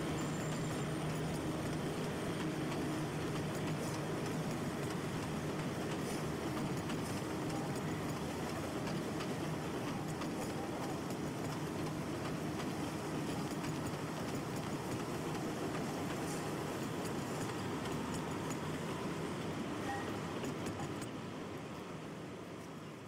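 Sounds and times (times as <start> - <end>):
wheels clicking over rail joints: 0.0 - 22.0
train cars rumbling: 0.0 - 22.9.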